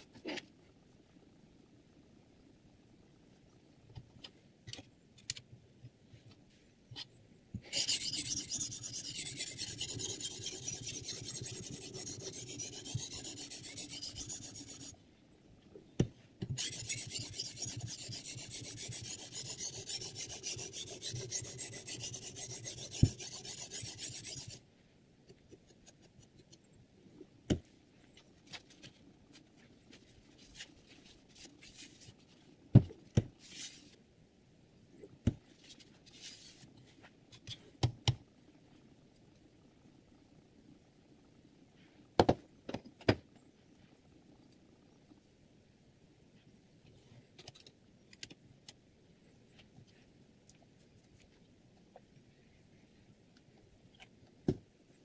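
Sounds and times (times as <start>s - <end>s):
sharpening stone rasping on knife: 7.7s - 14.9s, 16.6s - 24.6s.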